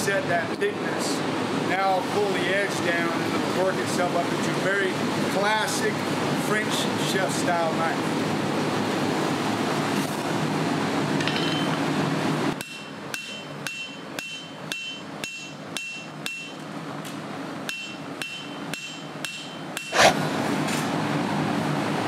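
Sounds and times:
hammer blows on anvil: 12.6 - 16.6, 17.7 - 20.0.

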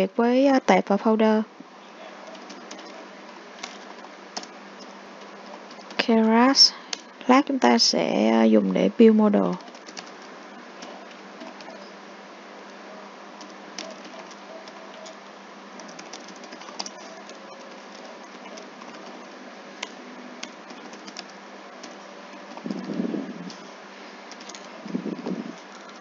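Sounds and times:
keyboard typing: 2.2 - 6.0, 9.4 - 11.9, 13.4 - 15.2, 15.8 - 23.7, 24.3 - 26.0.

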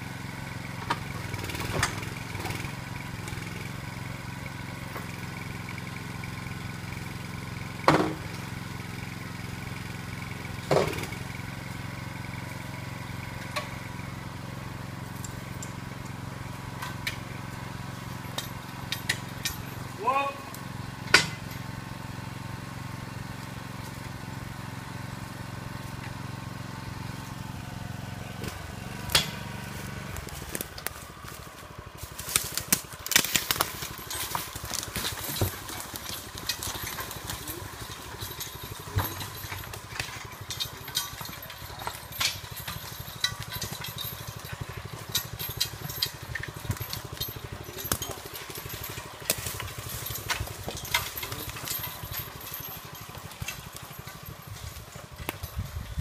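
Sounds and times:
small engine running: 0.0 - 56.0
sharp clicks and knocks: 32.3 - 55.9.

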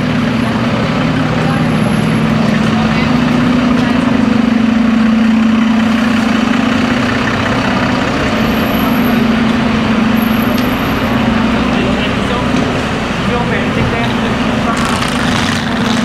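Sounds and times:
city street traffic: 0.0 - 16.0
large vehicle engine idling: 0.0 - 16.0.

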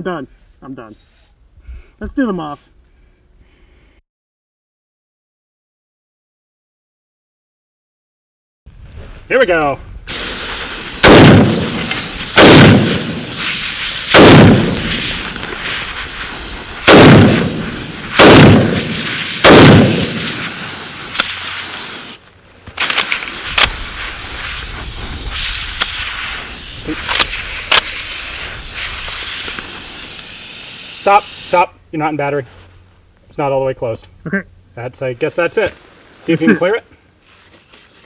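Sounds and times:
rifle shots: 10.1 - 21.6, 26.9 - 28.2
compressed air hissing: 10.1 - 22.2, 22.8 - 31.7.

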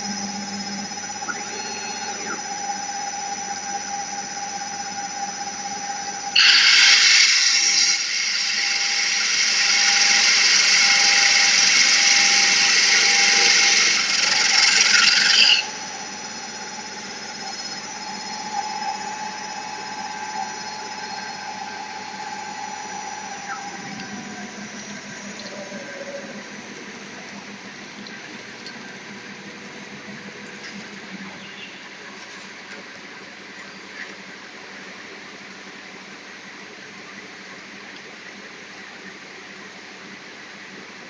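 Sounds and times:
spindle motor humming: 0.0 - 35.9
drill bit screeching through stone: 6.3 - 24.0.

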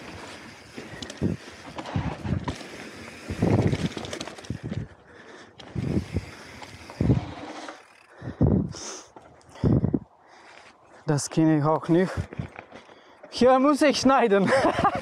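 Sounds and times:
bike tyres thumping over bumps: 0.0 - 5.0
bike clicking and rattling: 0.0 - 10.8, 11.5 - 15.0
wind noise on microphone: 0.8 - 5.0, 5.6 - 7.5, 8.1 - 8.8, 9.5 - 10.1.

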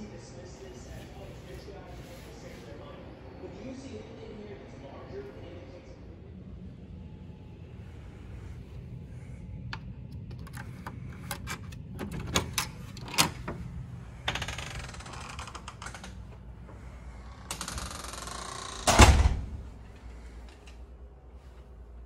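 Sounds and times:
door shutting thud: 18.8 - 19.8.

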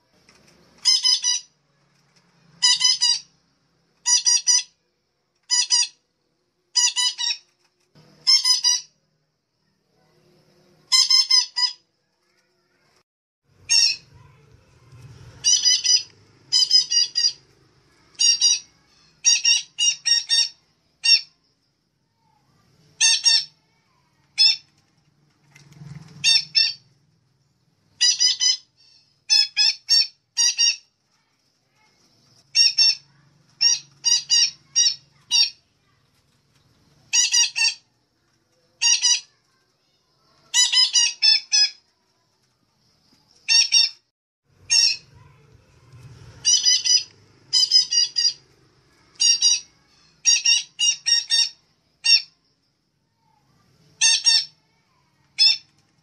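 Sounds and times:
parrot squawks: 0.8 - 1.6, 2.6 - 3.3, 4.0 - 4.8, 5.4 - 6.0, 6.7 - 7.5, 8.2 - 9.0, 10.9 - 11.8, 13.6 - 14.4, 15.4 - 21.4, 23.0 - 24.7, 26.2 - 26.8, 28.0 - 30.9, 32.5 - 36.0, 37.1 - 37.9, 38.8 - 39.4, 40.5 - 41.8, 43.5 - 44.0, 44.6 - 45.4, 46.4 - 48.4, 49.0 - 52.4, 54.0 - 55.7.

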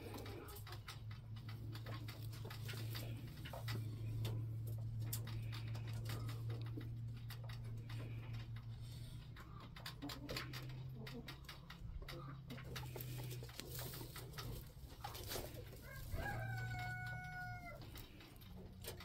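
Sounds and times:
steady low hum: 0.0 - 19.0
dry hay crackling: 1.4 - 6.8, 12.6 - 18.9.

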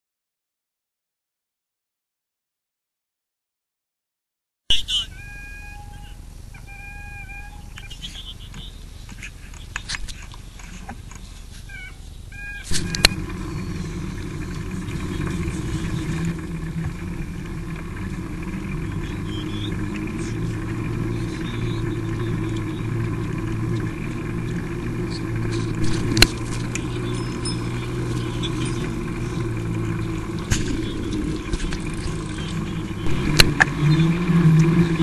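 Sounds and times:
short high-pitched calls: 4.7 - 8.8
tyres rumbling on pavement: 5.1 - 35.0.

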